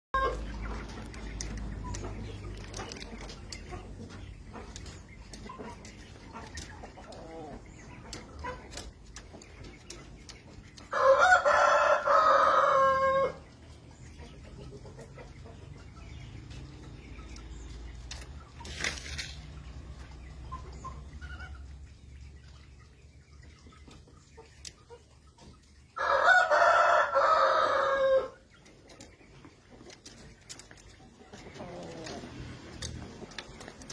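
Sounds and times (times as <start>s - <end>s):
rooster crowing: 11.0s - 13.4s, 26.0s - 28.4s.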